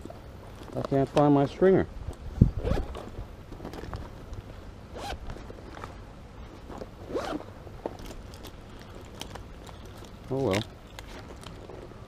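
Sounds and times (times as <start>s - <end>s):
fishing gear being handled: 6.5s - 12.0s.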